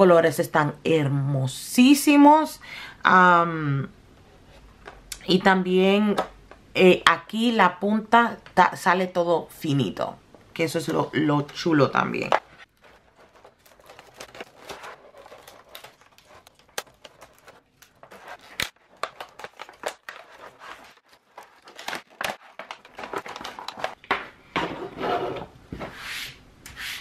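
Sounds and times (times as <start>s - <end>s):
plastic packaging crinkling: 12.6s - 24.1s.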